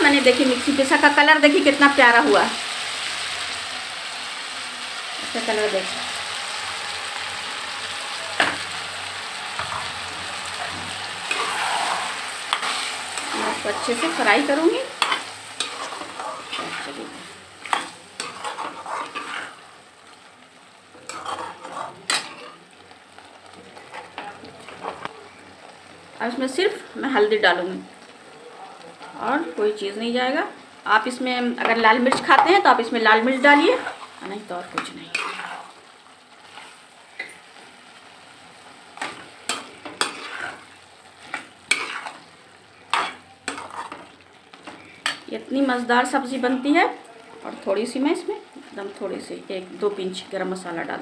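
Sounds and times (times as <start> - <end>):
food sizzling in a pan: 0.0 - 51.0
metal spatula scraping a pan: 9.5 - 19.8, 21.0 - 22.6, 23.8 - 25.1, 31.6 - 35.8, 36.4 - 37.6, 39.0 - 46.6.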